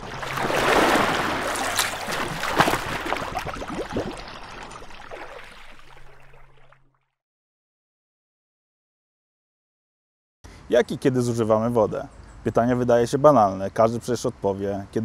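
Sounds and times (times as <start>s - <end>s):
water splashing and bubbling: 0.0s - 7.2s.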